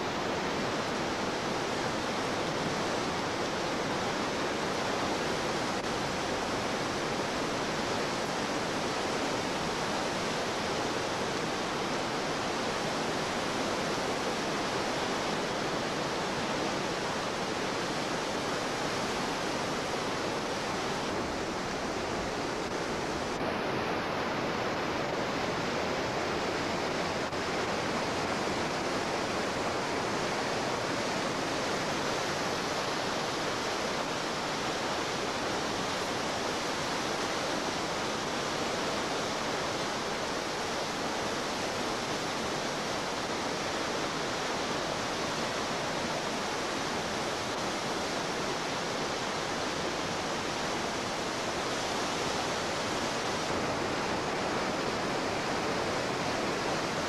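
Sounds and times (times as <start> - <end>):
whitewater rapids rushing: 0.0 - 57.0.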